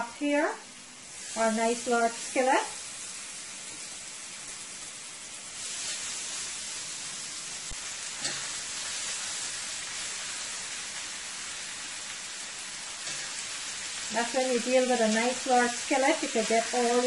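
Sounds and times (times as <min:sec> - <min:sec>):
steaks sizzling in a skillet: 0:00.0 - 0:17.0
tongs clicking on pan: 0:08.2 - 0:08.6.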